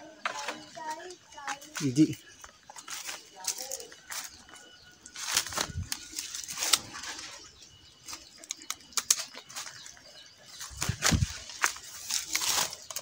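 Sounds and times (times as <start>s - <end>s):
leafy branches rustling and snapping: 2.8s - 4.3s, 5.0s - 10.0s, 10.6s - 13.0s.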